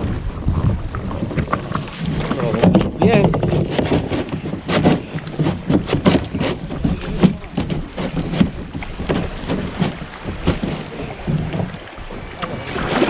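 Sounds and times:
water slapping against hull: 0.0s - 13.0s
irregular knocks: 2.5s - 12.6s.

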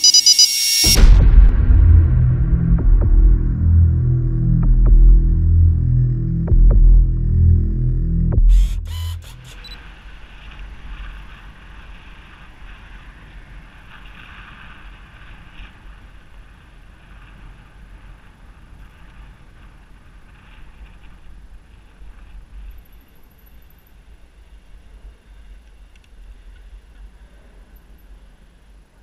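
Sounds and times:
music sting: 0.8s - 9.7s
road rumble: 0.9s - 23.6s.

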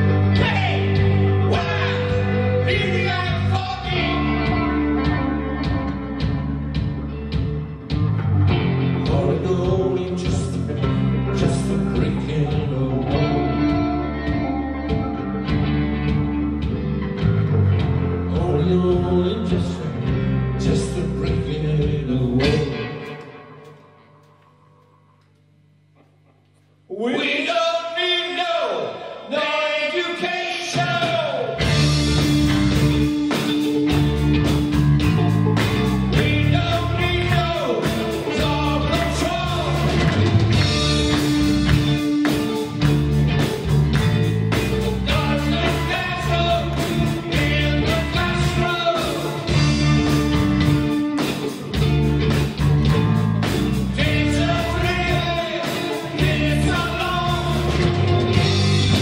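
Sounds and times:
live rock band playing: 0.0s - 24.3s, 30.6s - 59.0s.

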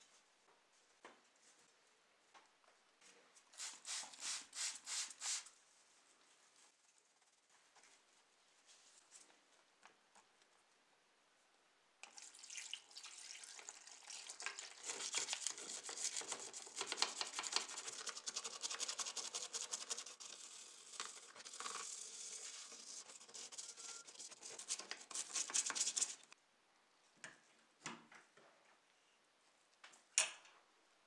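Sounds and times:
brush scrubbing in foamy liquid: 13.2s - 26.3s.

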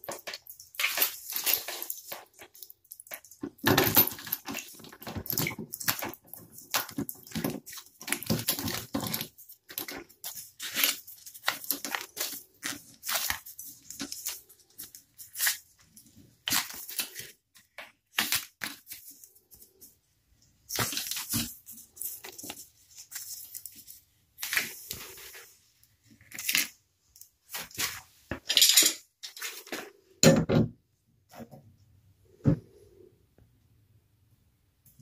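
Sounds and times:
tape rustling and tearing: 0.0s - 3.5s, 4.1s - 19.9s, 20.7s - 28.2s.

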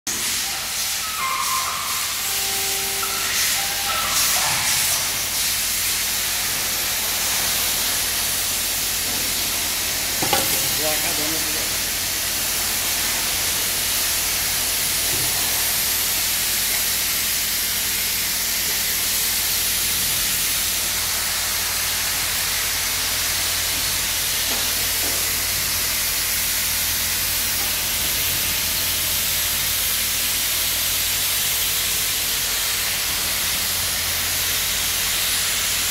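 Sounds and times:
steady hiss: 0.1s - 35.9s
workshop machinery humming: 0.1s - 35.9s.

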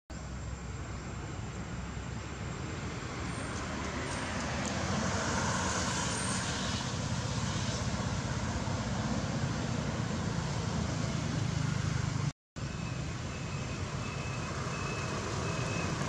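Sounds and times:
passing vehicle rush: 0.2s - 16.0s.

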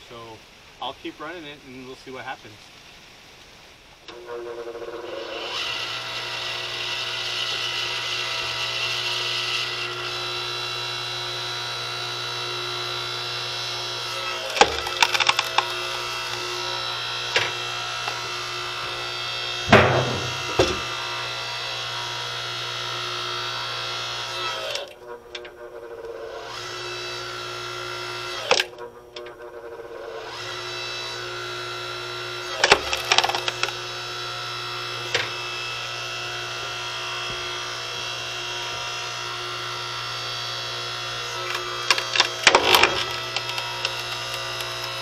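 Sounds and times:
log splitter motor whine: 4.1s - 45.0s
wood cracking and splintering: 12.9s - 22.8s, 32.4s - 34.0s, 40.9s - 45.0s.

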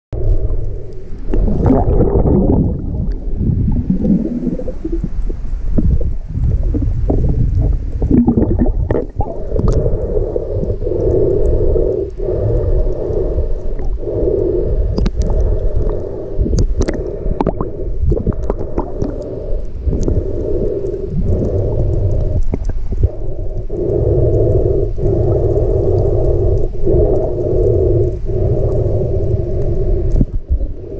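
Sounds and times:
underwater rumble of moving water: 0.2s - 30.9s
faint clicks: 8.9s - 30.4s.

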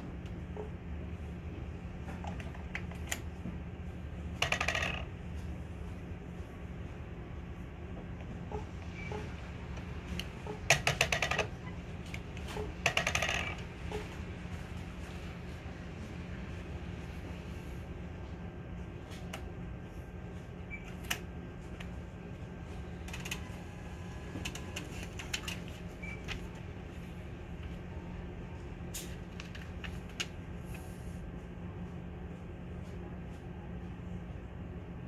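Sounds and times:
low background hum: 0.0s - 35.0s
receipt printer and card mechanism clicking: 23.0s - 26.6s.

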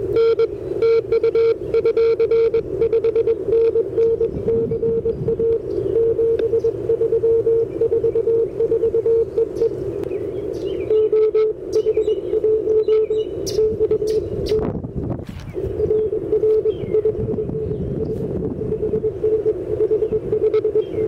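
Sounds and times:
morse code tone: 0.0s - 9.8s, 10.7s - 14.7s, 15.6s - 21.0s.

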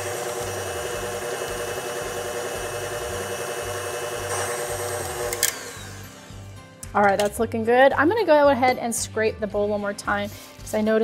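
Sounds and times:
stand mixer motor humming: 0.0s - 6.4s.

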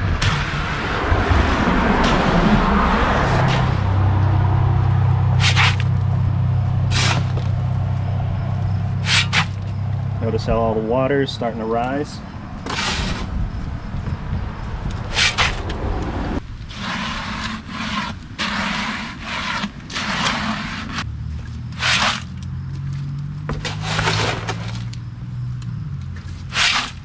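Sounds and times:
low engine hum: 0.0s - 12.7s, 13.3s - 16.6s, 21.0s - 23.8s
wet concrete scraping and splatting: 5.3s - 6.0s, 9.0s - 9.7s, 16.7s - 21.0s, 21.8s - 22.4s.

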